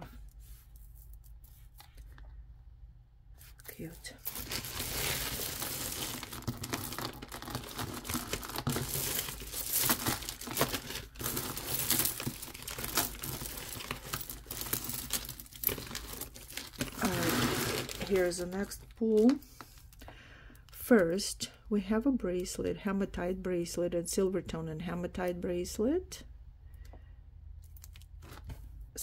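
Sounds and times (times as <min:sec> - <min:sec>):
plastic bag crinkling: 0:03.7 - 0:20.0.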